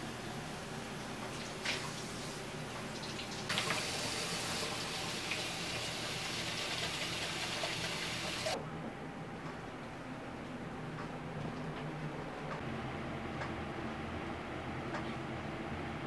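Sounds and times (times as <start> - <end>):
tap water running into sink: 2.8 - 8.6.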